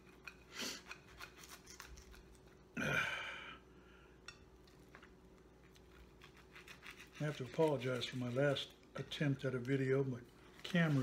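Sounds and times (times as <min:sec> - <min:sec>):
fork clicking and scraping plate: 0:00.0 - 0:02.4.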